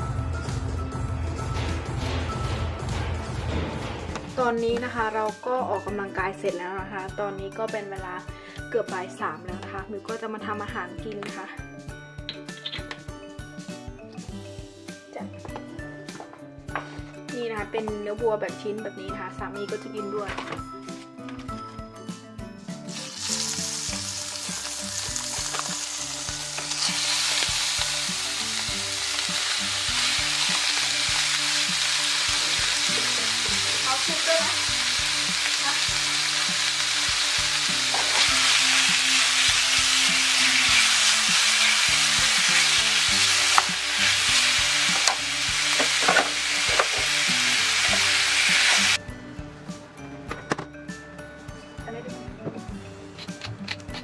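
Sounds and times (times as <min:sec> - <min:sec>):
beef sizzling in frying pan: 0:22.8 - 0:49.0.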